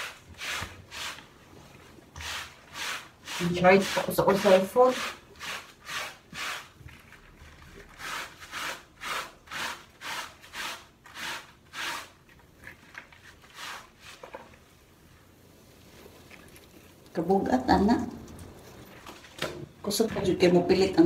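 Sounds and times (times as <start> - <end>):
scrub brush rasping on fabric: 2.2 - 7.2, 7.8 - 12.2, 13.2 - 14.2.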